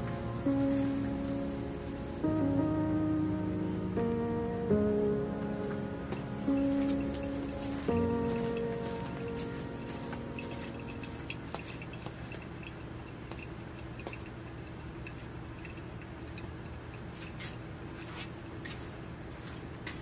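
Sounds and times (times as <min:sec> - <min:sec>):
coffee dripping: 0:05.6 - 0:17.4
small ticks: 0:06.1 - 0:17.6.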